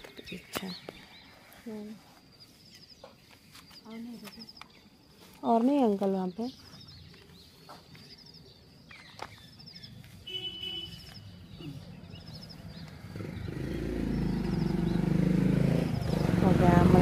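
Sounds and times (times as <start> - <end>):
birds calling: 0.0 - 17.0
vehicle engine approaching: 11.3 - 17.0.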